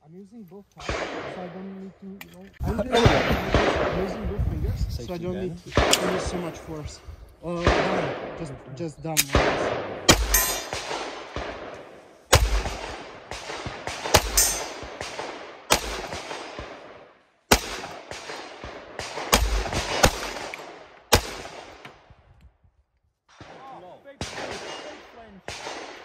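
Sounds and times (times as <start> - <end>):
pistol shots with echo: 0.8 - 1.7, 2.9 - 4.3, 5.7 - 6.6, 7.5 - 21.9, 23.4 - 26.0.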